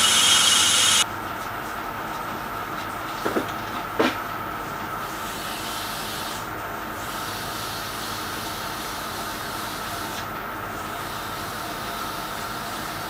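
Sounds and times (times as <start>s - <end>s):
metal lathe humming: 0.0s - 1.0s.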